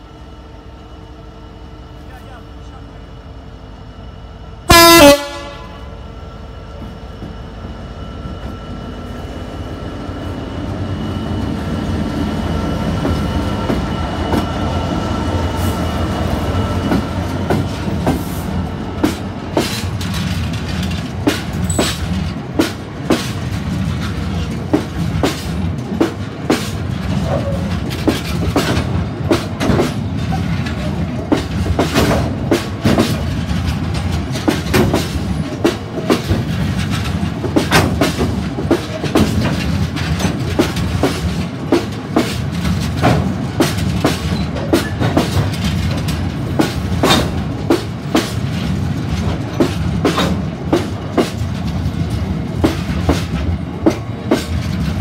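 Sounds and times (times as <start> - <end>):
diesel locomotive engine: 0.0 - 55.0
locomotive horn blast: 4.7 - 6.0
train wheels clacking on rail joints: 10.2 - 55.0.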